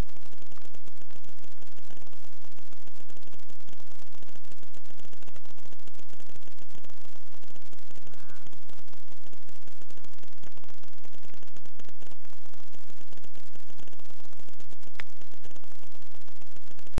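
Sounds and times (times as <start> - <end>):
crackling static hiss: 0.0 - 17.0
low hum: 0.0 - 17.0.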